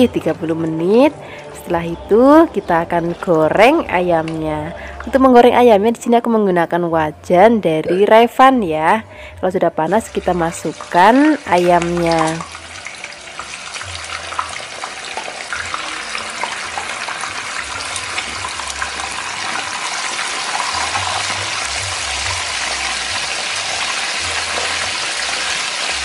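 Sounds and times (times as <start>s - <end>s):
chicken sizzling in hot oil: 10.4s - 26.0s.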